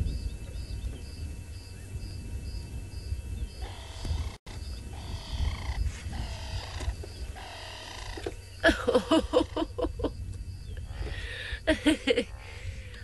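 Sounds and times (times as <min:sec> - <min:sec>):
lion cubs calling: 0:03.6 - 0:09.7.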